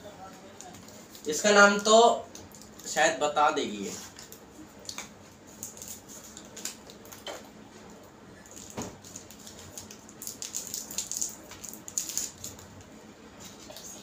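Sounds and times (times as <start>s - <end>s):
plastic wrapper crinkling: 0.6s - 3.0s, 4.1s - 7.3s, 8.4s - 12.8s.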